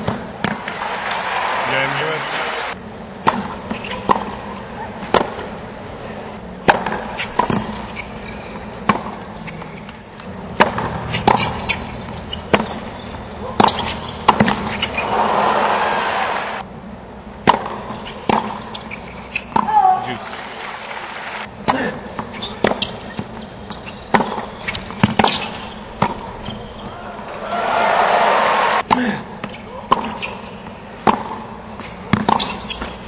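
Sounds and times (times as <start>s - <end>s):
tennis ball struck and bouncing: 0.0s - 0.8s, 3.2s - 5.5s, 6.6s - 8.1s, 8.8s - 9.2s, 10.2s - 12.9s, 13.6s - 15.1s, 17.4s - 19.8s, 21.6s - 23.4s, 24.1s - 26.4s, 28.8s - 33.0s
crowd noise: 0.4s - 2.8s, 13.3s - 16.7s, 20.1s - 21.5s, 26.7s - 28.8s.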